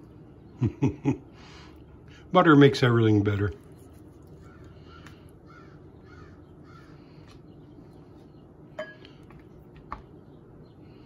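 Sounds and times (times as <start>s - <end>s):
low steady hum: 0.0s - 11.0s
faint bird calls: 4.4s - 11.0s.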